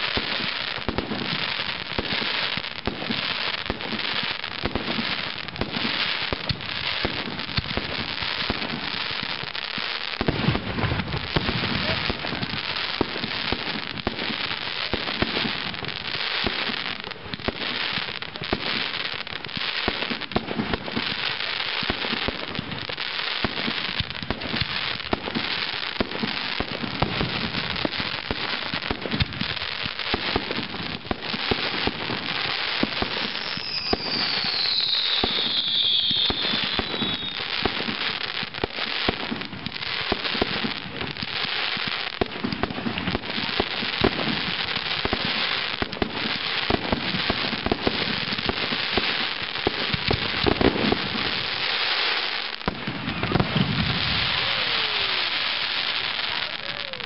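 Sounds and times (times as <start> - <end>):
fireworks bangs and crackling: 0.0 - 57.0
high falling whistle: 33.5 - 37.4.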